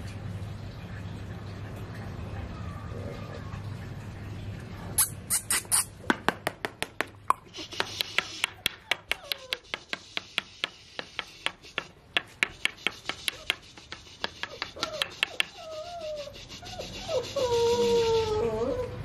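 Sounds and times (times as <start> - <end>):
puppy claws clicking on concrete: 5.0 - 16.2.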